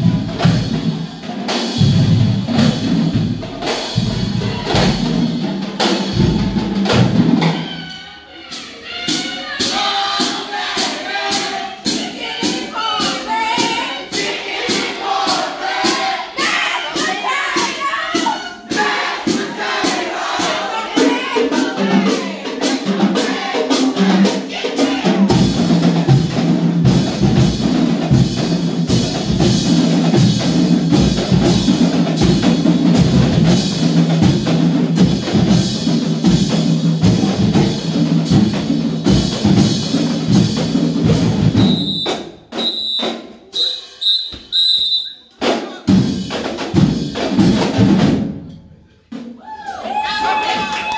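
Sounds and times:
bass drums: 0.0s - 7.6s, 25.1s - 43.6s, 45.4s - 48.5s
marching drumline cadence: 0.0s - 50.9s.

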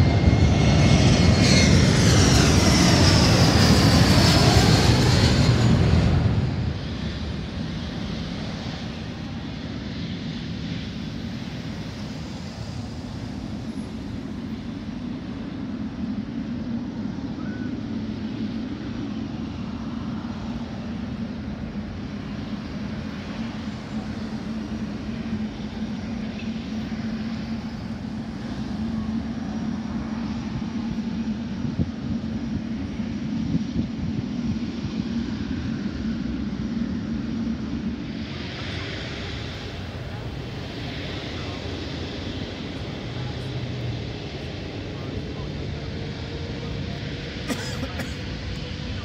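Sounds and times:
constant low hum: 0.0s - 49.0s
distant jet engines: 0.0s - 49.0s
road traffic rumble: 37.4s - 49.0s.

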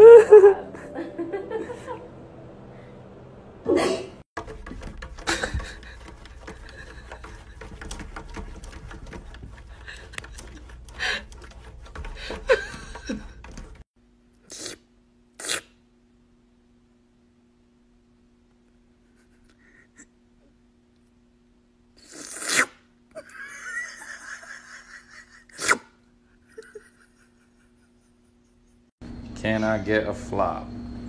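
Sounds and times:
cat scratching at window pane: 4.4s - 13.8s.

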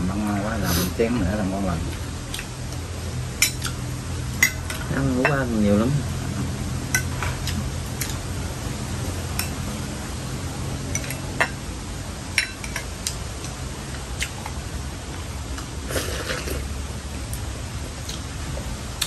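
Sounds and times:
steady low hum: 0.0s - 19.0s
utensils clinking against bowls: 3.4s - 3.8s, 4.4s - 5.5s, 6.9s - 8.2s, 10.9s - 11.6s, 12.4s - 12.9s.

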